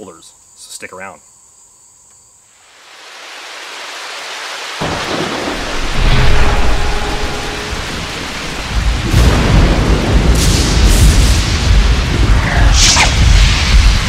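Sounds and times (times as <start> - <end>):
rain hissing: 2.4 - 14.0
deep thunder rumbling: 4.8 - 14.0.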